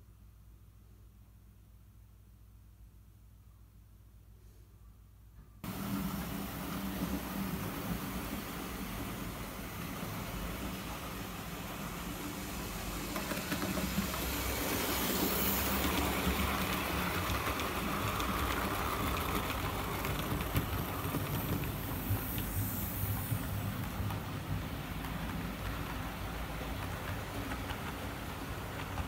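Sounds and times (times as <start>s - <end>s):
wheels rumbling over rail joints: 5.6s - 29.0s
model train motor hum: 5.7s - 23.9s.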